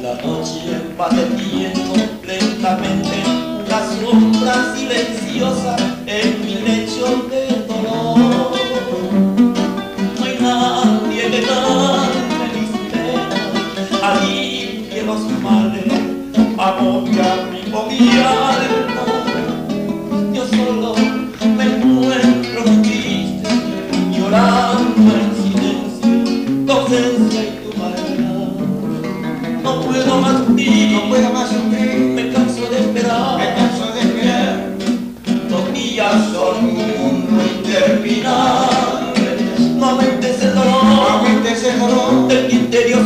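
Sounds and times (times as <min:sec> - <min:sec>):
acoustic guitar playing: 0:00.0 - 0:43.0.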